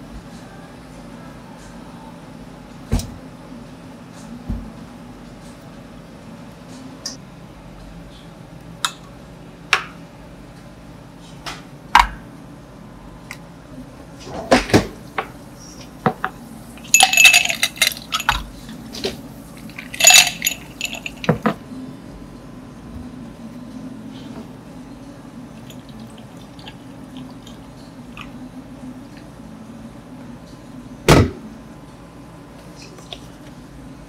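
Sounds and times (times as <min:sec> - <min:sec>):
ice cubes clinking into glasses: 0:16.8 - 0:18.5, 0:19.6 - 0:21.6
cup and glasses set on counter: 0:19.8 - 0:21.6.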